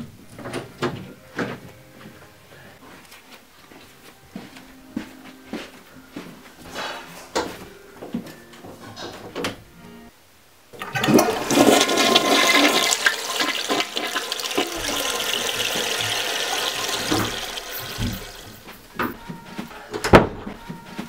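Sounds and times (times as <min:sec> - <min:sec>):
toilet flushing: 0:10.8 - 0:19.2.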